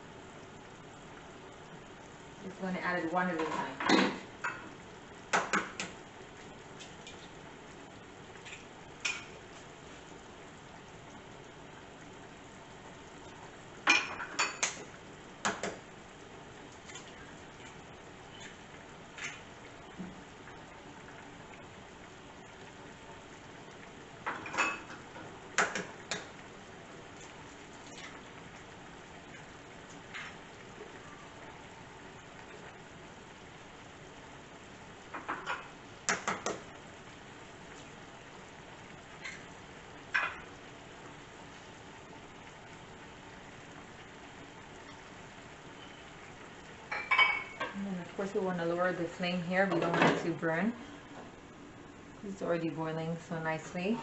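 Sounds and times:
sauce simmering in a skillet: 0.0 - 49.7
glass dishes clinking together: 46.9 - 47.8.

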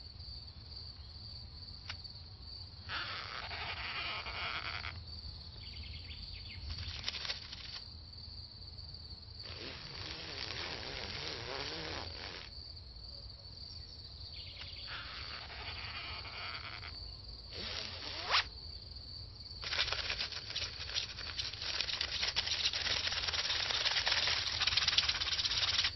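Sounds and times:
high-pitched insect trill: 2.0 - 25.9
bursts of hissing noise: 9.4 - 12.5, 17.5 - 18.5, 19.6 - 25.9.

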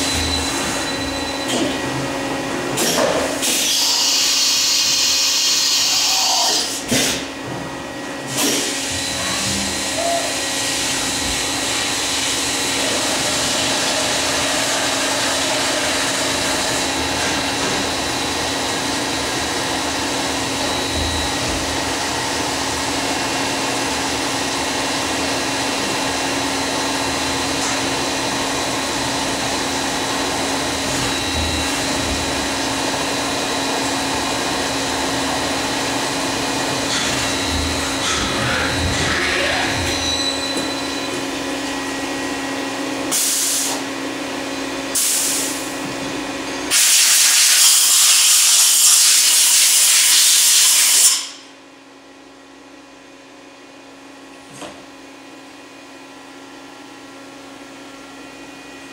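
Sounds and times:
machine tone: 0.0 - 2.1, 8.4 - 18.4, 36.7 - 41.5.

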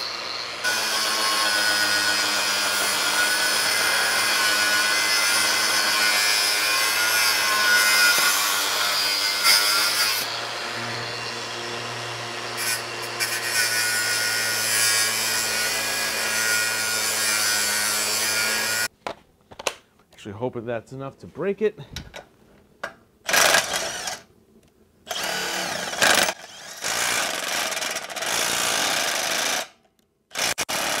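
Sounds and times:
angle grinder grinding metal: 0.0 - 18.9, 25.1 - 29.7.

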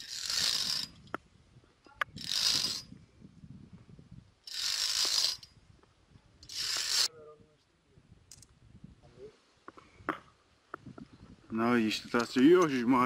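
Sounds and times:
carabiners scraping along steel cable: 0.0 - 1.2, 2.1 - 3.0, 4.4 - 5.6, 6.4 - 7.1.

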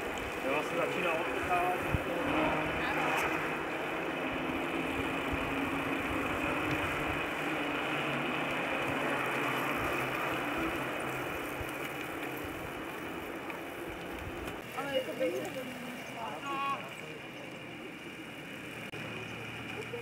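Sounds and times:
wind buffeting microphone: 0.0 - 14.6
bicycle rolling on paved road: 0.0 - 20.0.

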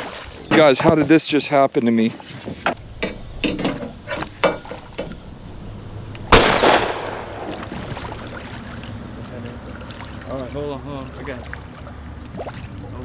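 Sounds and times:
pistol shot with echo: 6.3 - 7.6
fish splashing at surface: 6.4 - 13.0.

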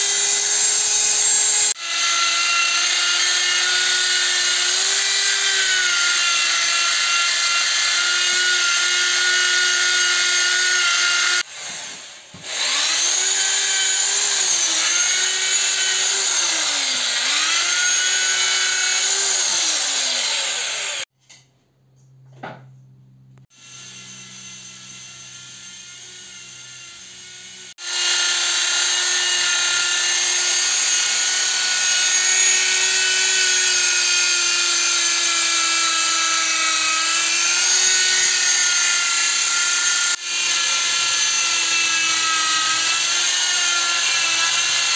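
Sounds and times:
electric drill motor whine: 0.0 - 21.1, 23.5 - 44.9.

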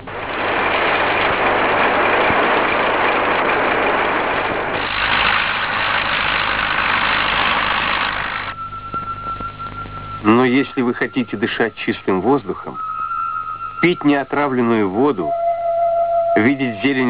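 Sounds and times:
combine harvester machinery: 0.0 - 9.9.

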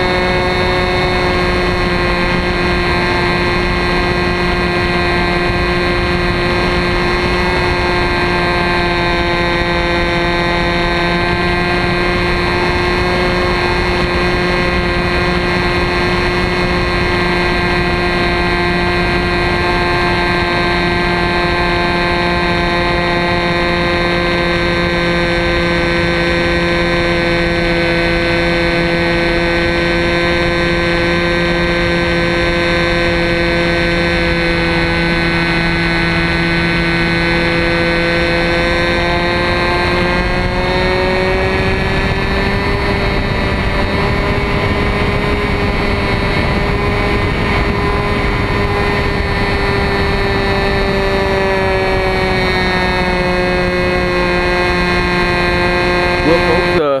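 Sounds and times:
model plane engine buzzing: 0.0 - 57.0
steady rushing noise: 0.0 - 57.0.

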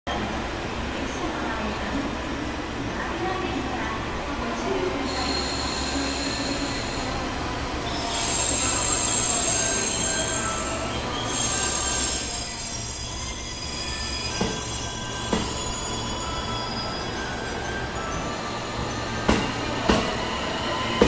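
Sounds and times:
train wheels squealing on rails: 5.0 - 21.0.

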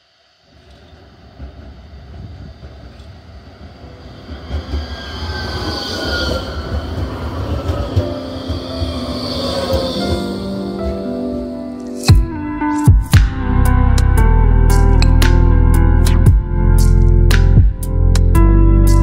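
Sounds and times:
tram wheels rumbling on rails: 0.0 - 12.2
high wheel squeal: 3.9 - 12.1.

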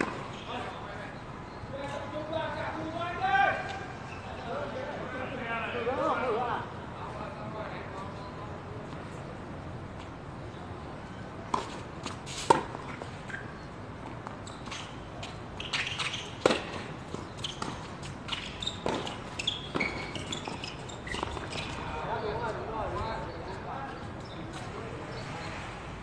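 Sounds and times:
racket hitting tennis ball: 0.0 - 0.4, 15.6 - 21.5
tennis ball bouncing: 0.0 - 0.5, 14.0 - 21.8.

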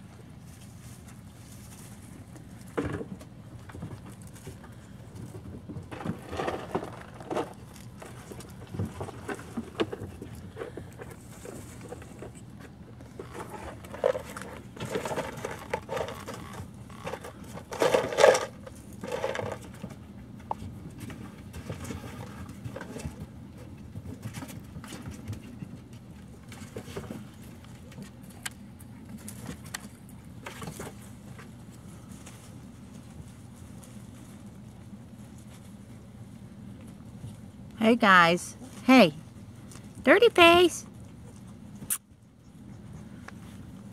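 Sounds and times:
paws scrabbling on plastic tub: 0.0 - 43.9.

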